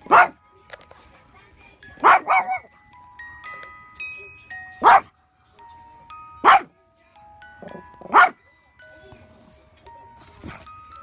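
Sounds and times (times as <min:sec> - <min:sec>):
small dog barking: 0:00.0 - 0:00.4, 0:02.0 - 0:02.6, 0:04.8 - 0:05.1, 0:06.4 - 0:06.7, 0:08.1 - 0:08.4
music box melody: 0:00.0 - 0:11.0.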